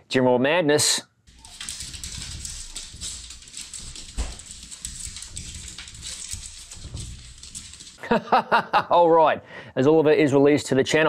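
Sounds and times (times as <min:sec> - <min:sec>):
dog claws scratching on glass door: 0:01.3 - 0:08.0.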